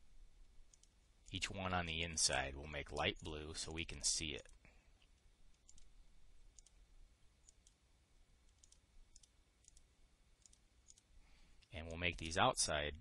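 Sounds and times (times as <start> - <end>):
low steady hum: 0.0 - 13.0
computer mouse clicks: 0.7 - 1.0, 4.4 - 5.9, 6.5 - 6.8, 7.4 - 7.8, 8.5 - 9.8, 10.4 - 12.2.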